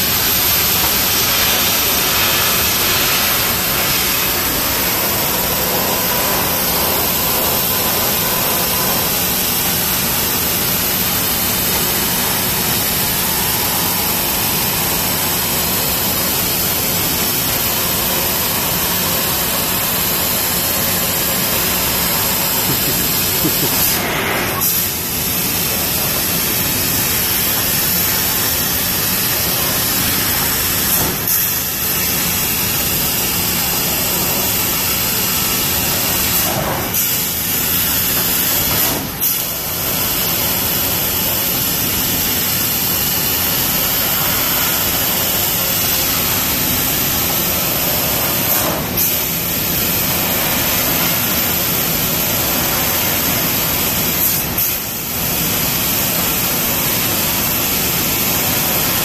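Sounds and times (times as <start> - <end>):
laser cutter hissing: 0.0 - 59.0.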